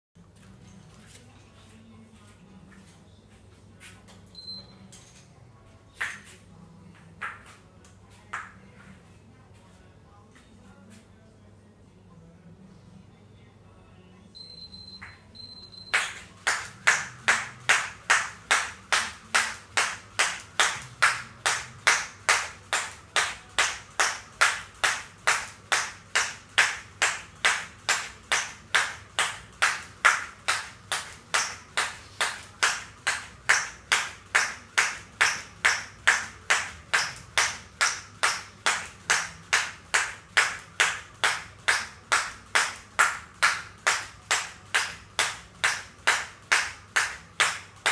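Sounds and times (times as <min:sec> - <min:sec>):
high electronic timer beep: 0:04.4 - 0:04.8, 0:14.4 - 0:16.2
skipping rope slapping floor: 0:16.5 - 0:47.9.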